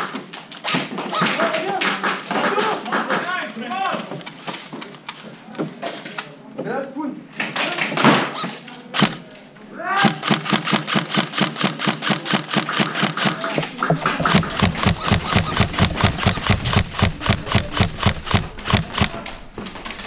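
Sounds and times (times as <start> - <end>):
airsoft gun firing: 8.0 - 9.2, 10.0 - 20.0.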